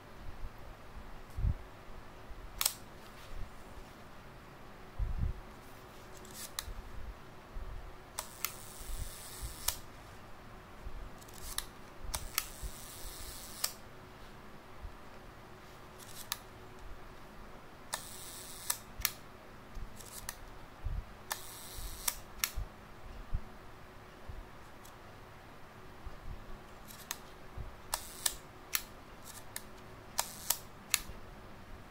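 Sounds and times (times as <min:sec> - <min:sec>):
camera shutter clicks: 0:08.2 - 0:09.8, 0:11.2 - 0:13.8, 0:17.9 - 0:19.2, 0:21.3 - 0:22.6, 0:27.9 - 0:31.1.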